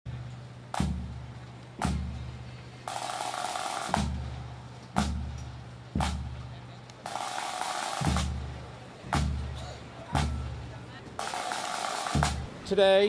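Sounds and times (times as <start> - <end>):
marching drums beating slowly: 0.1 - 13.0
snare drum roll: 2.9 - 4.4, 7.0 - 9.6, 11.2 - 12.5.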